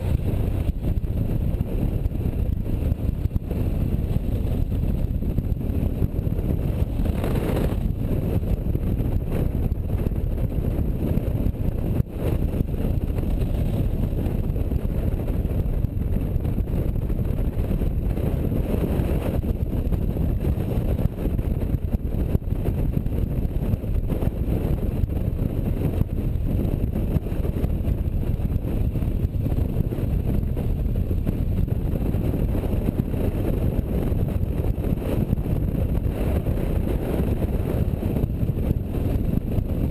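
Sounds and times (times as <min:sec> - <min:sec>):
motorcycle engine running: 0:00.0 - 0:39.9
wind buffeting the microphone: 0:00.0 - 0:39.9.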